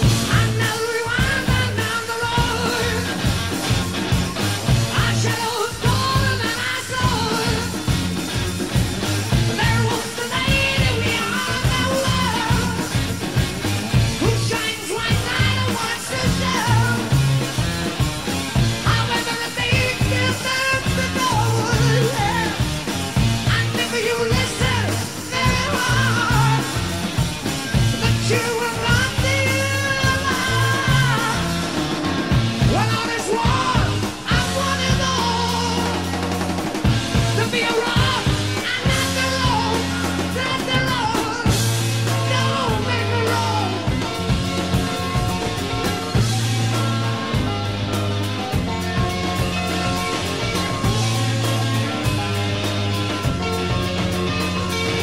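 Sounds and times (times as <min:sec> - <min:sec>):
song with steady drum beat: 0:00.0 - 0:55.0.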